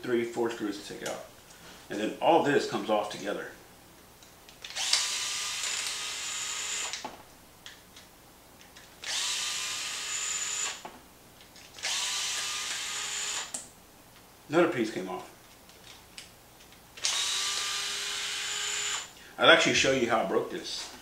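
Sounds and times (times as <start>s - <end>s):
cordless screwdriver running: 4.7s - 7.0s, 9.0s - 10.8s, 11.8s - 13.5s, 17.0s - 19.1s.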